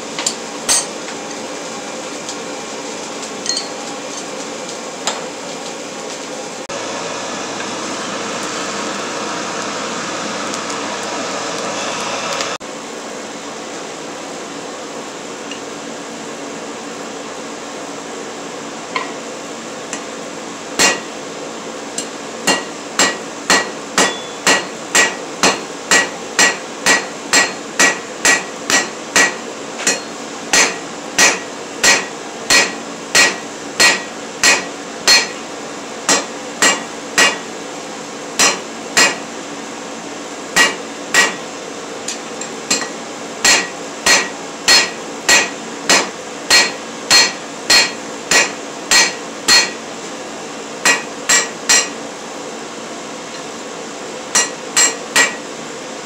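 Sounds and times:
steady background hum: 0.0 - 56.0
hammer ringing on anvil: 20.8 - 21.1, 22.5 - 35.4, 36.1 - 37.4, 38.4 - 39.2, 40.6 - 41.4, 42.7 - 49.8, 50.9 - 52.0, 54.3 - 55.4.

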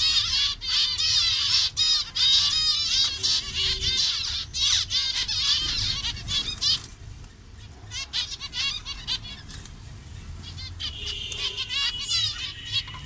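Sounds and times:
zebra finches chattering: 0.0 - 13.0.

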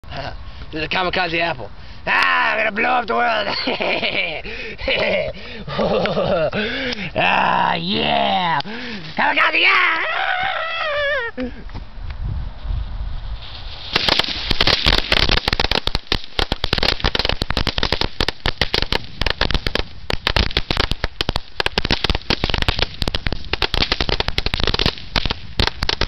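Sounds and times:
firecrackers popping: 13.4 - 26.0.

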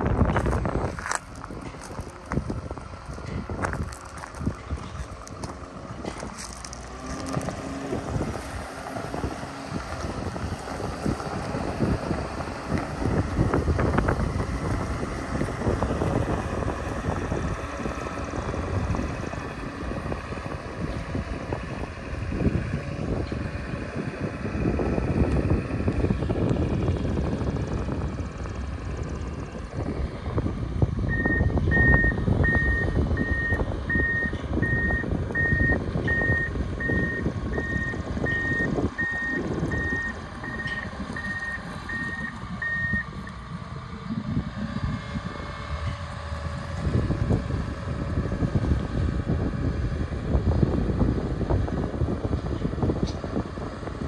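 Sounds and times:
diesel engine running: 0.0 - 54.0
backup alarm beeping: 31.1 - 43.1.

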